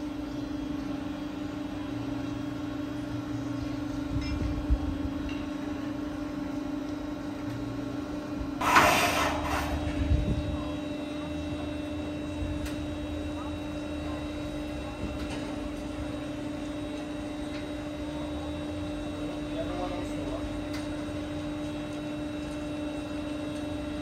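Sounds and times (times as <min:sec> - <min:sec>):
steady machine hum: 0:00.0 - 0:24.0
short loud hiss: 0:08.6 - 0:09.7.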